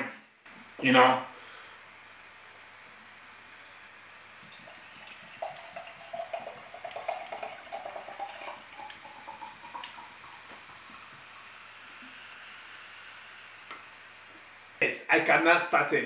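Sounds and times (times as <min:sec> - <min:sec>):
cider pouring into a glass: 0:03.0 - 0:12.1.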